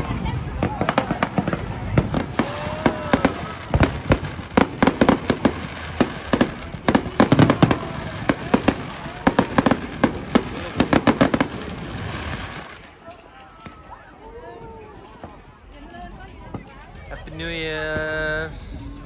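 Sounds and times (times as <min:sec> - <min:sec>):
fireworks bangs and crackling pops: 0:00.0 - 0:13.9.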